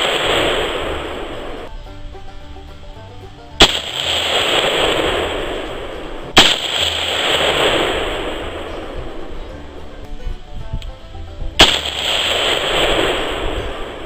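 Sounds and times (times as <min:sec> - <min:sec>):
rifle shots echoing: 0:03.6 - 0:08.9, 0:11.6 - 0:14.0.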